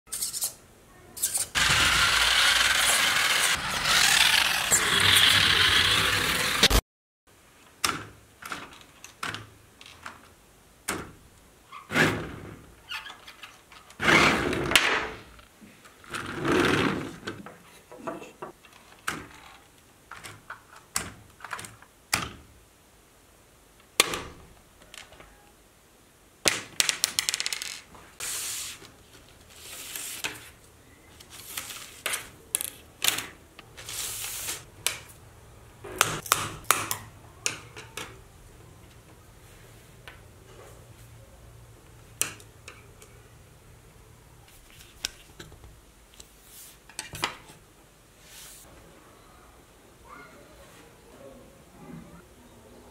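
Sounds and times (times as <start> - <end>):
toy car electric motor whirring: 1.2 - 6.8.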